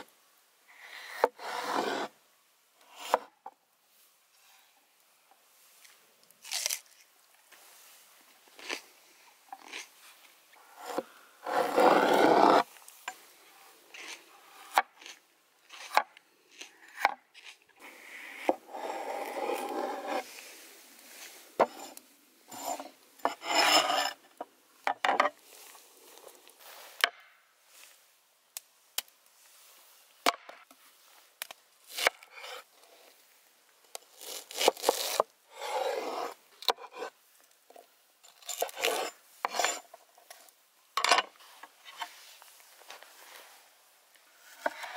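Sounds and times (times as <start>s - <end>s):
knife scraping cutting board: 0.9s - 2.1s, 10.8s - 12.7s, 14.0s - 20.3s, 21.2s - 24.2s, 31.9s - 32.6s, 34.1s - 37.1s, 38.4s - 39.8s, 44.5s - 44.9s.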